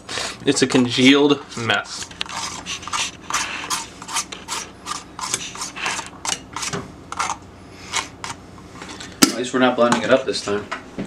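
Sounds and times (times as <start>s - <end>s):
spoon scraping plastic tray: 1.6s - 8.4s.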